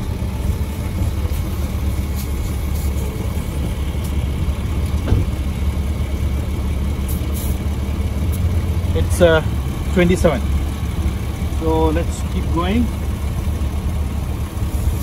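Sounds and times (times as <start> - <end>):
air compressor humming: 0.0 - 15.0.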